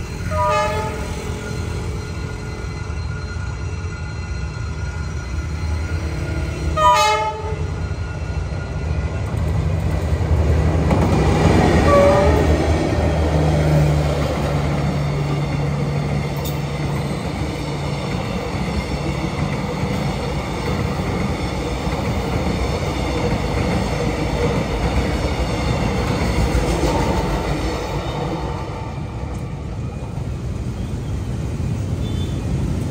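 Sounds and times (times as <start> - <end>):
train horn blast: 0.2 - 1.3, 6.7 - 7.8, 11.8 - 12.6.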